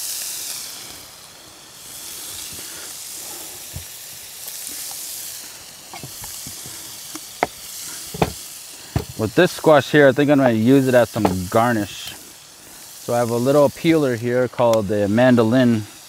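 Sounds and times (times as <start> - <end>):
meat sizzling in a skillet: 0.0 - 16.0.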